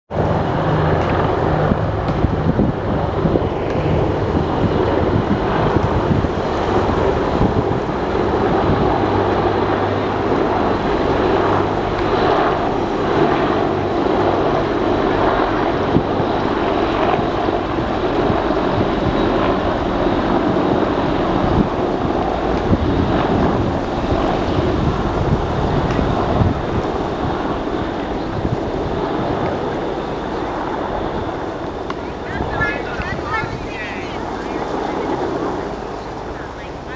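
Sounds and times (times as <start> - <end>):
helicopters rotor drone: 0.1 - 36.9.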